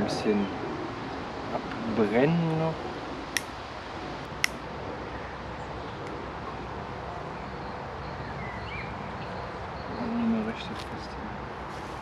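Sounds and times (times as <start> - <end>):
outdoor background hiss: 0.0 - 12.0
faint bird chirp: 7.3 - 11.1.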